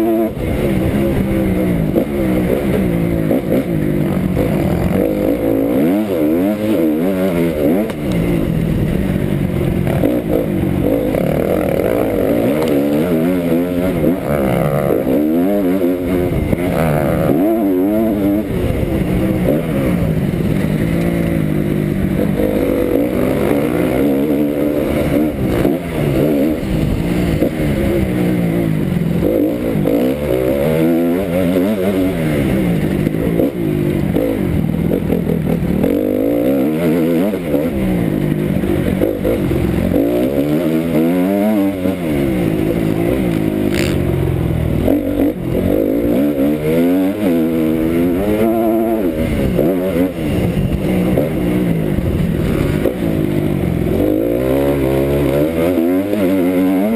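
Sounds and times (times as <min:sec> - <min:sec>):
motocross bike engine revving: 0:00.0 - 0:56.9.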